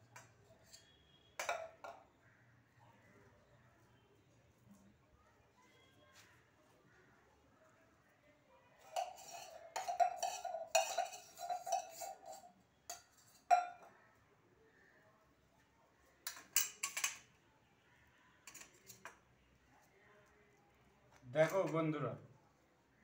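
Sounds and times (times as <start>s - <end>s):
spoon scraping in hard shell: 0.1s - 1.6s, 8.8s - 13.8s
spoon clinking in steel mug: 8.8s - 13.9s, 16.3s - 17.3s.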